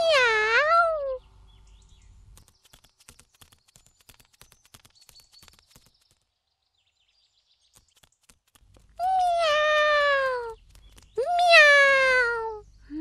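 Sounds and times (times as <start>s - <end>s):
quick light tapping steps: 2.3s - 6.3s, 7.7s - 9.0s, 10.5s - 11.2s.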